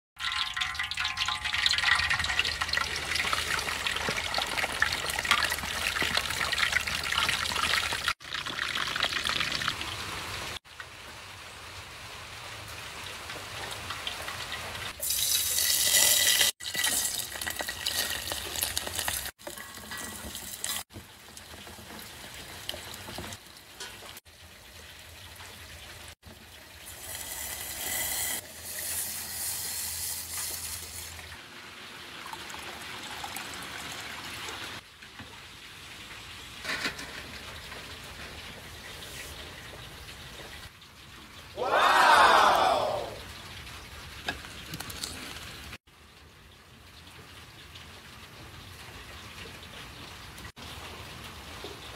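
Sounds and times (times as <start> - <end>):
liquid pouring into metal pot: 0.2 - 9.7, 15.0 - 24.1
fish sizzling in hot oil: 0.2 - 10.2, 12.7 - 33.2.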